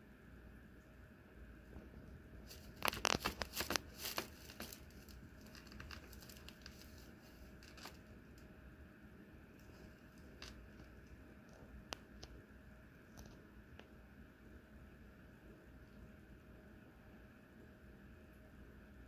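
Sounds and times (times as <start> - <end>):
fabric tunnel rustling: 2.4 - 8.1.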